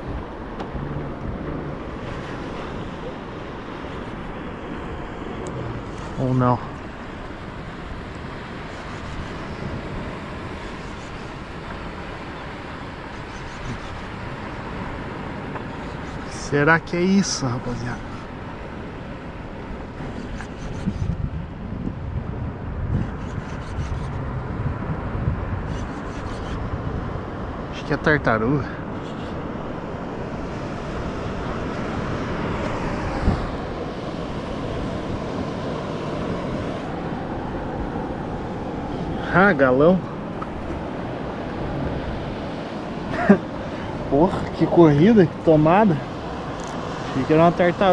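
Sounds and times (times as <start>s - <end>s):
wind and water rushing: 0.0s - 47.9s.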